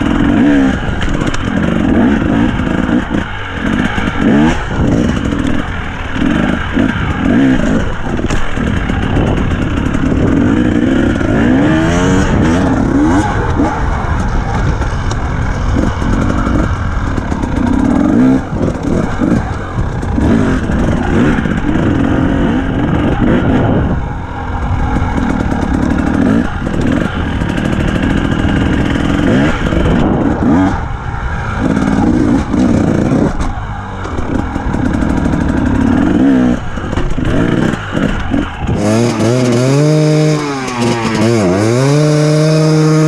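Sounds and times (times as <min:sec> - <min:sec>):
dirt bike engine revving: 0:00.0 - 0:43.0
heavy rumble: 0:00.0 - 0:43.0.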